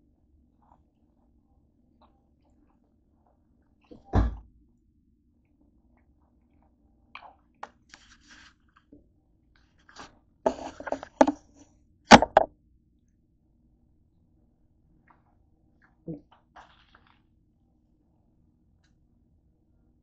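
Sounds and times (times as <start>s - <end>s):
plastic bottle crinkling: 9.8s - 11.4s, 16.6s - 17.2s
crunching from eating: 15.0s - 17.4s.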